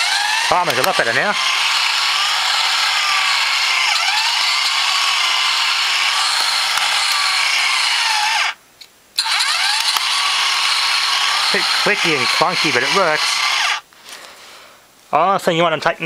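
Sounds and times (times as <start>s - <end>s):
clicky clunky engine model running: 0.0s - 8.5s, 9.2s - 13.8s
small electric motor whirring: 0.0s - 8.6s, 9.2s - 13.8s.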